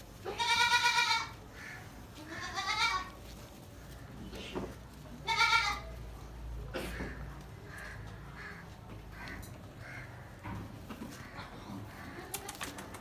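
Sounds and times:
goat kids bleating: 0.0 - 6.3.

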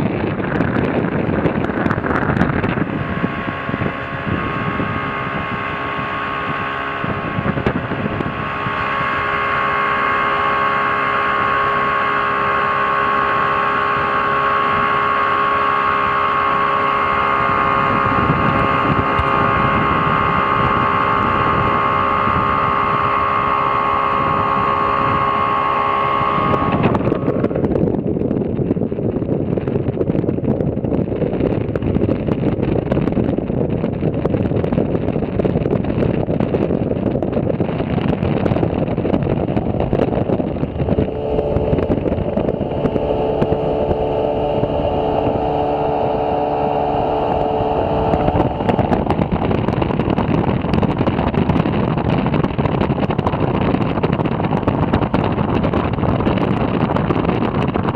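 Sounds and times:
wind and water rushing: 0.0 - 30.9, 31.5 - 57.9
outboard motors running: 0.0 - 57.9.

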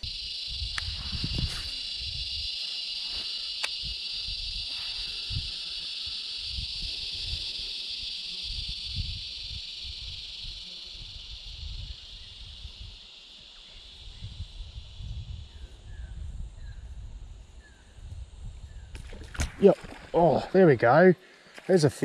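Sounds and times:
high-pitched hiss: 0.0 - 22.0.

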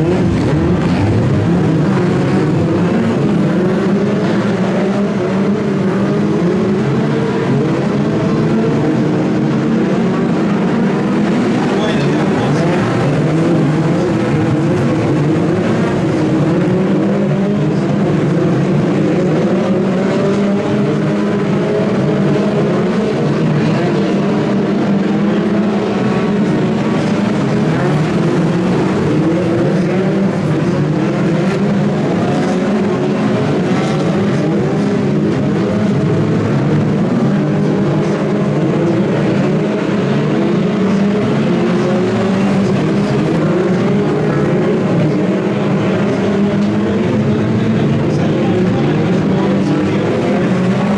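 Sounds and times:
racing car engines revving: 0.0 - 50.9.

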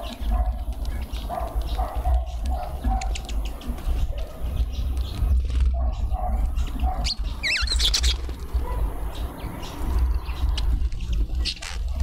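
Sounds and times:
small songbirds chirping: 0.0 - 12.0
warbling bird call: 7.0 - 8.2.

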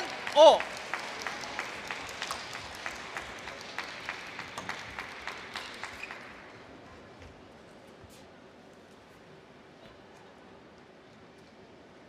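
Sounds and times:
sparse applause: 0.0 - 6.6.

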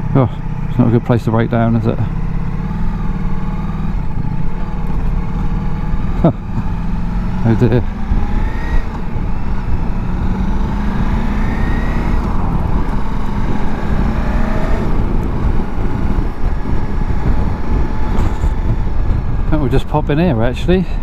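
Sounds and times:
motorcycle engine running: 0.0 - 21.0
wind noise: 7.8 - 21.0.

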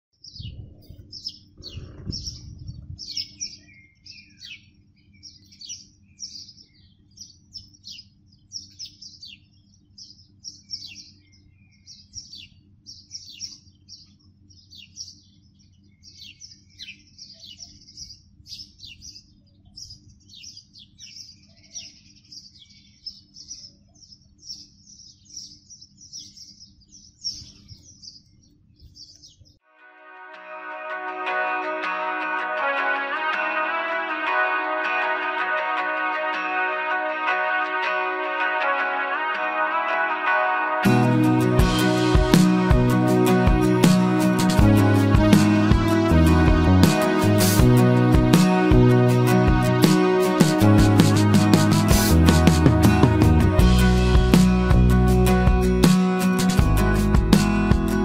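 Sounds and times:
steady low hum: 0.2 - 5.4
small birds chirping: 0.2 - 29.6
low rumble: 0.3 - 3.2.

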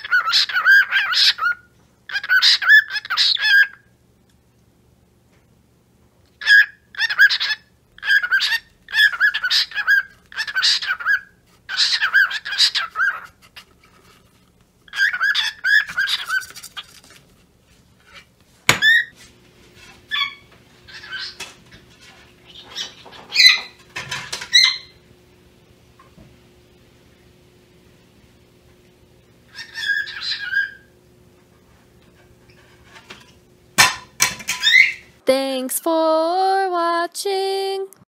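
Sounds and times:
cockatiel chirping: 0.0 - 3.8, 6.4 - 13.3, 14.9 - 16.5, 20.1 - 21.5, 22.5 - 23.8, 24.5 - 25.0, 29.5 - 30.9.

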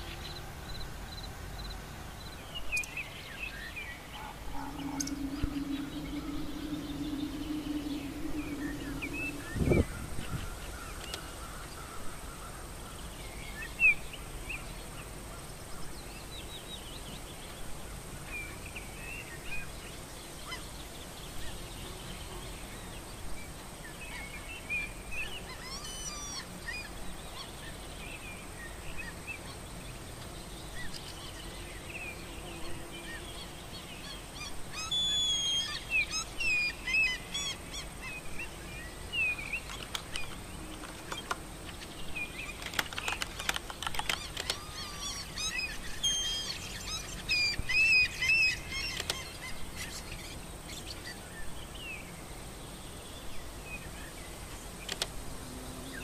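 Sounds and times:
faint steady hiss: 0.0 - 56.0
birds chirping and calling: 4.1 - 11.2.

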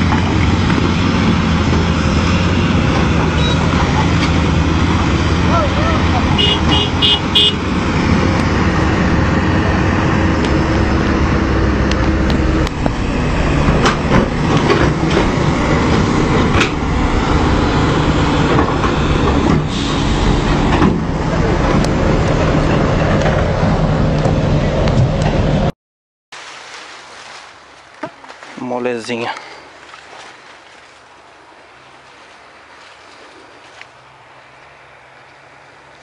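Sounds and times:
excavator diesel engines running: 0.0 - 25.7.

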